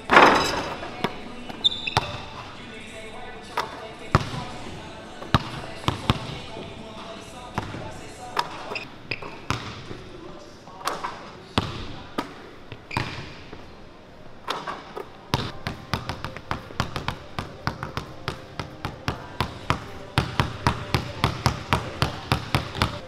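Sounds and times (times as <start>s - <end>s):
basketball bouncing on wood floor: 0.1s - 2.4s, 4.1s - 4.5s, 9.2s - 10.0s, 15.3s - 23.0s.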